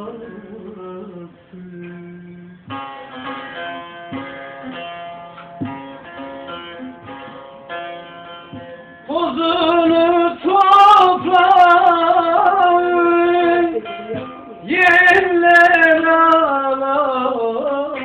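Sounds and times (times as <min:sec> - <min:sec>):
person singing: 0:00.0 - 0:02.9, 0:09.1 - 0:18.0
plucked string instrument melody: 0:00.0 - 0:18.0.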